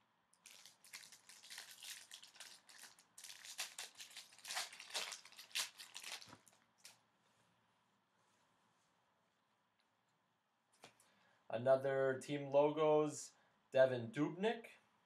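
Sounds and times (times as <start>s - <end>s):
foil wrapper crinkling and tearing: 0.4s - 7.0s.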